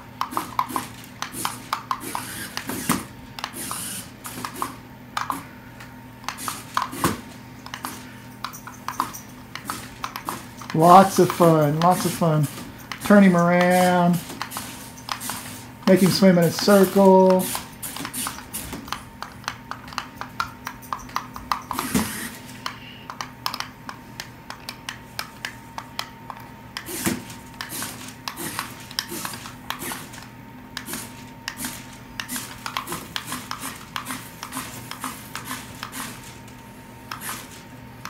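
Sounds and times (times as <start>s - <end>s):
faint steady hum: 0.0s - 38.0s.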